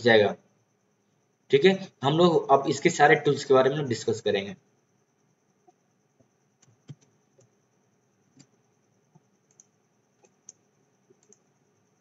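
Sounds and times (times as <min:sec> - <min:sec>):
computer mouse clicks: 0:06.6 - 0:07.5, 0:08.4 - 0:11.5.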